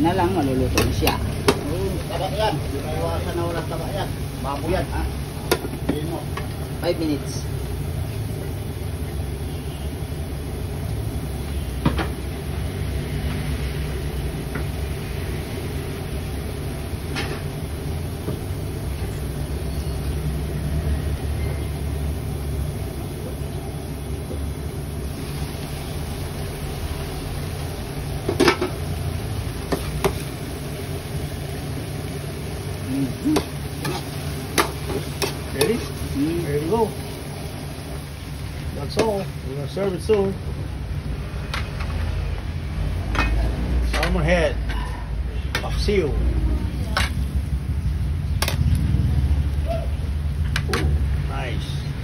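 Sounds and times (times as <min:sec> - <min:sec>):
gas burner flame rumbling: 0:00.0 - 0:52.0.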